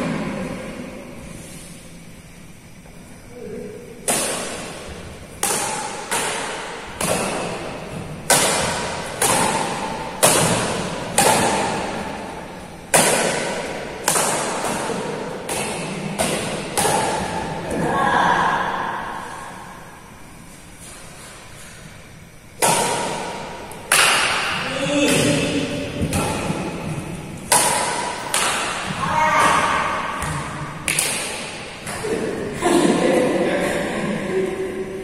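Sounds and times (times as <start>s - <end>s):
racket hitting shuttlecock: 4.0s - 17.8s, 22.5s - 32.6s.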